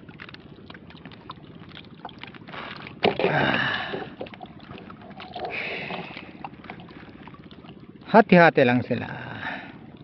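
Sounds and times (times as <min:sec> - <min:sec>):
taps and clicks of fishing gear: 0:00.0 - 0:07.9
water splashing: 0:00.0 - 0:08.1.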